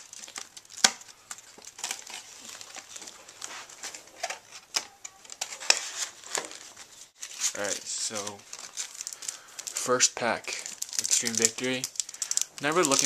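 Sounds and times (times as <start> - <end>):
plastic and foil crinkling: 0.0 - 13.0.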